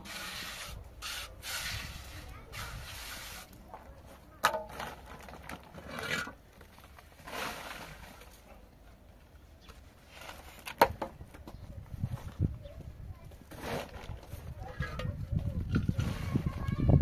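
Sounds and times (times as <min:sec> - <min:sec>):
blocks scraping together: 0:00.0 - 0:03.7, 0:04.4 - 0:08.4, 0:13.5 - 0:15.0.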